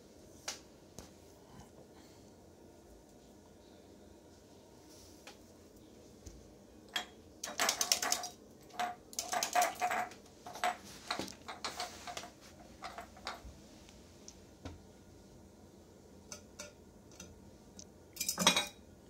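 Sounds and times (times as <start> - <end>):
rabbit claws clicking on tiles: 7.4 - 13.5
glass jars clinking: 18.2 - 18.8.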